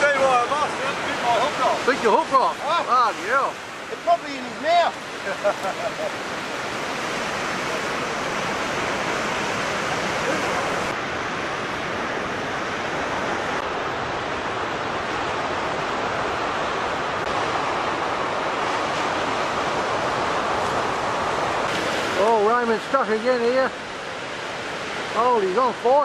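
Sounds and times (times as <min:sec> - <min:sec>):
ocean waves breaking on beach: 0:00.0 - 0:26.0.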